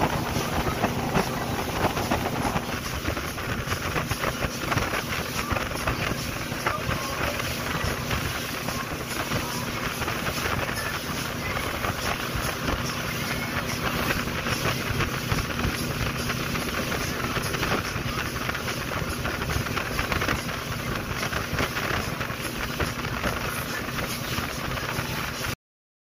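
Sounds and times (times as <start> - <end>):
boat engine low drone: 0.0 - 25.6
rush of wind and spray: 0.0 - 25.6
wind buffeting microphone: 0.0 - 25.6.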